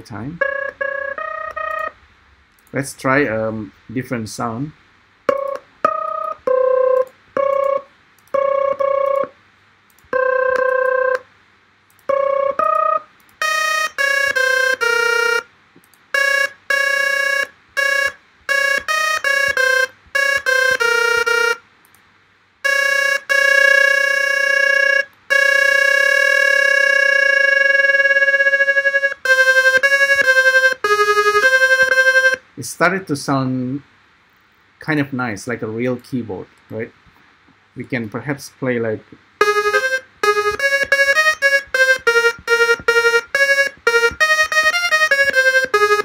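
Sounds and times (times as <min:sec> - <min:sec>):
electronic synthesizer tones: 0:00.0 - 0:02.0, 0:12.0 - 0:15.5, 0:16.1 - 0:21.6, 0:22.6 - 0:32.5, 0:39.4 - 0:46.0.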